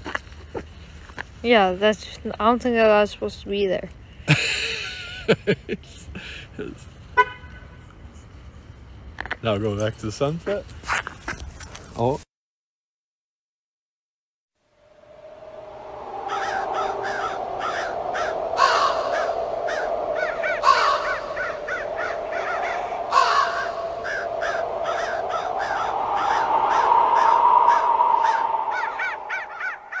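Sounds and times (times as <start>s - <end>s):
steady low drone: 14.8s - 30.0s
crows cawing: 16.2s - 30.0s.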